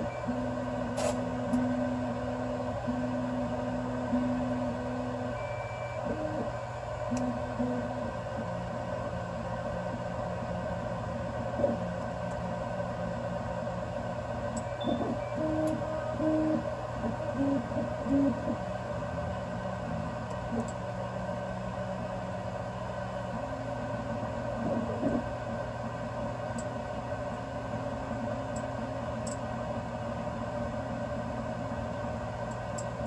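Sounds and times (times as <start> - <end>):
cooling fans whirring: 0.0 - 33.0.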